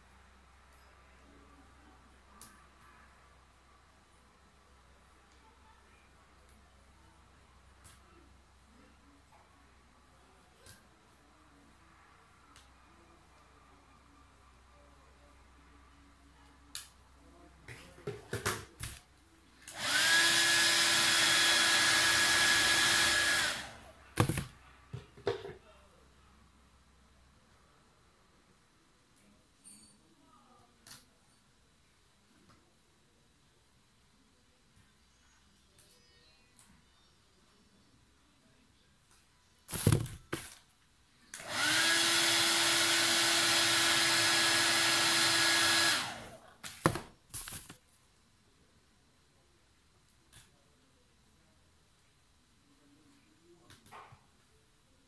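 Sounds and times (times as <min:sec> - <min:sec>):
hair dryer blowing: 0:19.7 - 0:23.8, 0:41.4 - 0:46.3.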